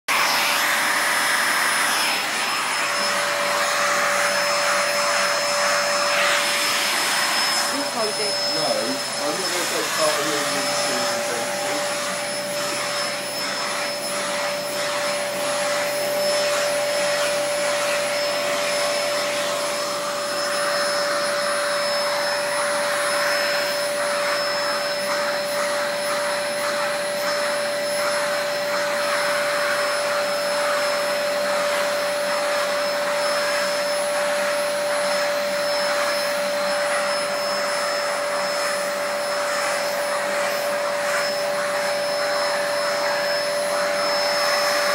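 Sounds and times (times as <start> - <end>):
vacuum cleaner motor whine: 0.1 - 44.9
suction hiss: 0.2 - 32.8.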